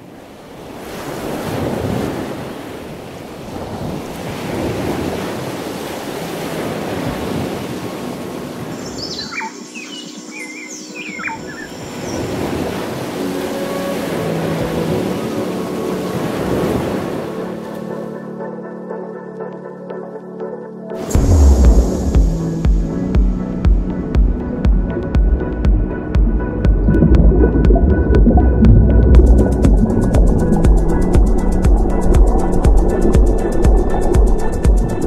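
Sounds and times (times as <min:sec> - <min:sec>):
sea waves on shore: 0:00.0 - 0:18.5, 0:21.0 - 0:24.6, 0:26.9 - 0:35.0
soft music with held tones: 0:06.4 - 0:35.0
bird chirps: 0:08.8 - 0:12.3.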